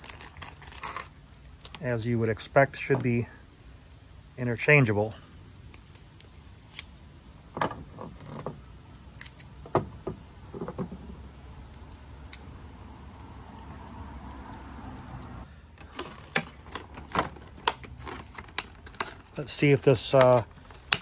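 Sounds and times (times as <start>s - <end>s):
plastic packaging rattling: 0.0s - 1.2s, 15.8s - 21.0s
metal keys and lock clinking: 14.3s - 15.3s.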